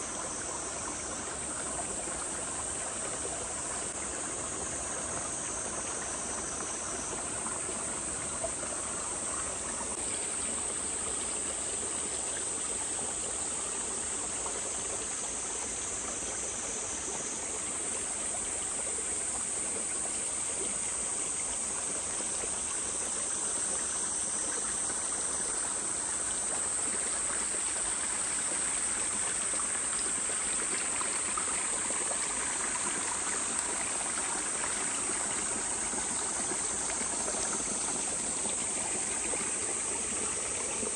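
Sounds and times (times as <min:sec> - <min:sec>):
high-pitched insect chorus: 0:00.0 - 0:40.9
stream running: 0:00.0 - 0:40.9.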